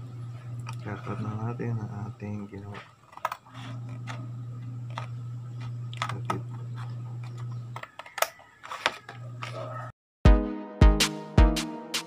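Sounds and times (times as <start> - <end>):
low steady hum: 0.0 - 8.3.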